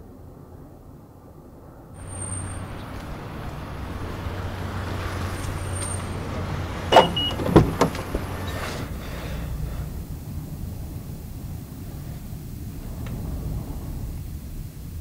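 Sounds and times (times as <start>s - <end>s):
car engine humming: 2.0s - 15.0s
sharp clunks: 6.9s - 8.9s.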